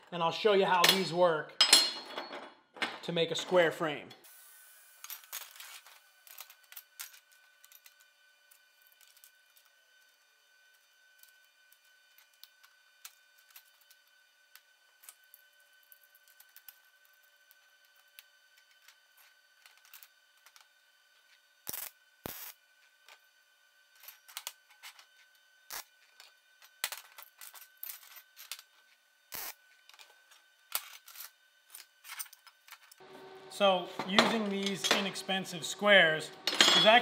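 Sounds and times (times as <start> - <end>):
metal clanks: 36.5 - 37.0.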